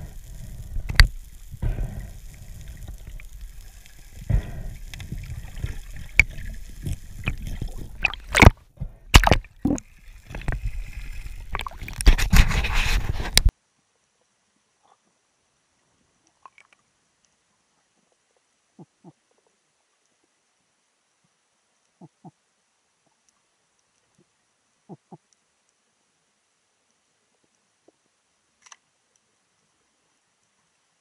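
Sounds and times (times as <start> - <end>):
low underwater rumble: 0.0 - 12.0
underwater gurgling bubbles: 0.0 - 12.4.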